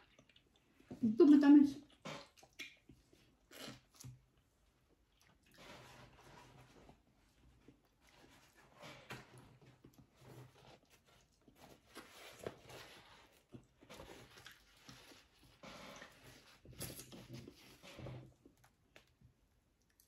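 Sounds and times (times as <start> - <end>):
chewing: 0.0 - 1.0, 1.8 - 6.2.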